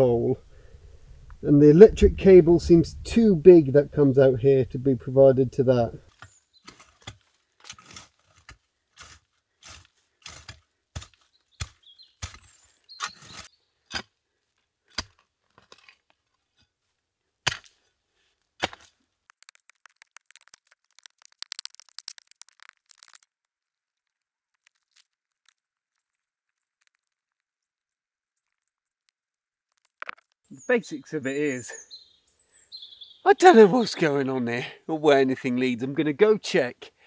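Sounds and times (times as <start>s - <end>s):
digging tool chopping into soil: 6.2s - 14.1s, 17.5s - 17.8s, 18.6s - 19.0s
crackling rustle of soil: 18.2s - 30.5s.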